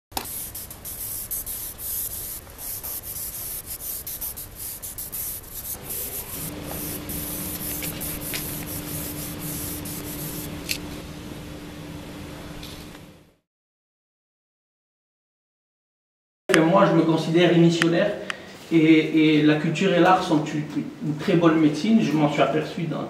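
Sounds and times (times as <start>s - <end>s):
spray-paint can hissing: 0.1s - 10.8s
steady low hum: 0.2s - 13.4s.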